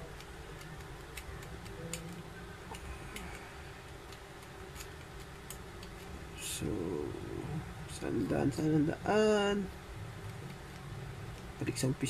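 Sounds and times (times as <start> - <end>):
plastic puzzle ticking and clicking: 0.0 - 6.0.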